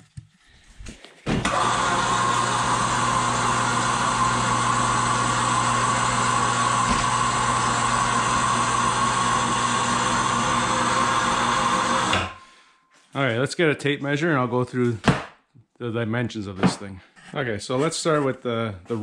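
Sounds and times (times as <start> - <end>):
electric winch motor hum: 1.4 - 12.5.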